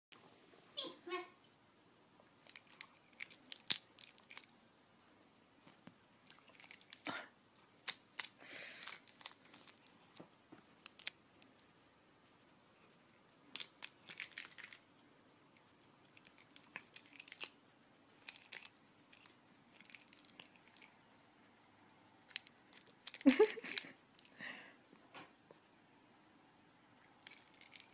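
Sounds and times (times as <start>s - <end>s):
cellophane wrapper crinkling: 2.4s - 4.7s, 6.2s - 7.2s, 7.8s - 10.2s, 10.8s - 11.5s, 13.5s - 15.0s, 15.8s - 21.0s, 22.2s - 24.4s, 27.1s - 27.9s.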